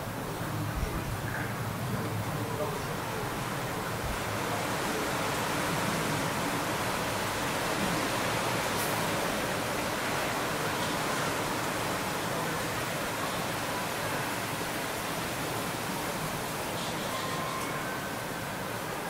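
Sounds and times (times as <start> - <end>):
outdoor background hiss: 0.0 - 19.0.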